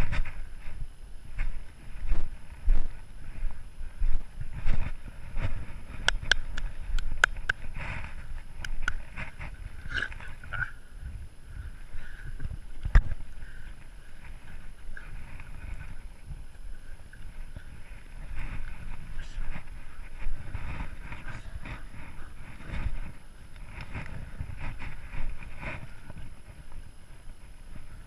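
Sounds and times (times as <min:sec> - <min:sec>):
rumble and buffeting of running dog: 0:00.0 - 0:28.0
sharp clicks: 0:06.0 - 0:07.6, 0:08.6 - 0:09.1.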